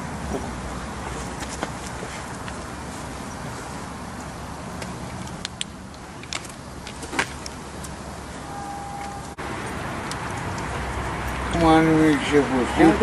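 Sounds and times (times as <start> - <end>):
engine rumbling: 0.0 - 13.0
short steady tone: 8.4 - 9.4.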